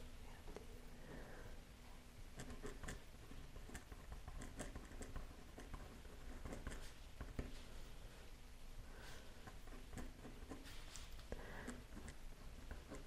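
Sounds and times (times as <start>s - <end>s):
pen scratching on paper: 2.4s - 7.5s, 9.4s - 10.9s, 11.7s - 13.0s.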